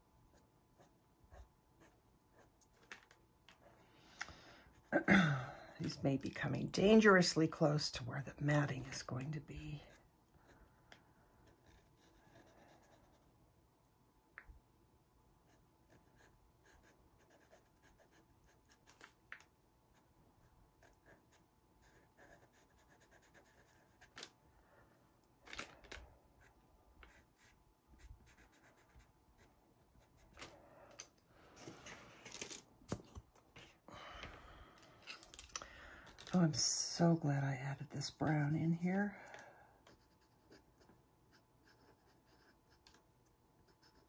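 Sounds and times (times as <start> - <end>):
pastel pencil scratching on paper: 0.2 - 2.9, 3.5 - 6.2, 11.4 - 13.4, 15.4 - 19.0, 19.9 - 24.3, 26.4 - 30.5, 39.9 - 43.0, 43.6 - 44.0.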